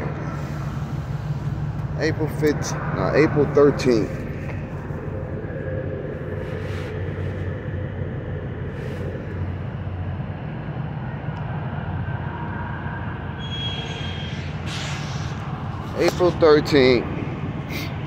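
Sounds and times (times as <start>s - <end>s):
engine idling: 0.0s - 12.5s
faint high whistle: 13.4s - 15.3s.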